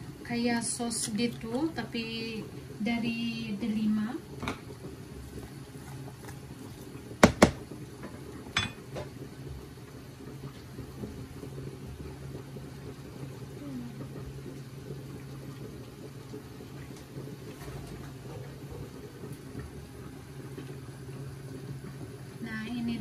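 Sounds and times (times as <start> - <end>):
appliance low hum: 0.0 - 23.0.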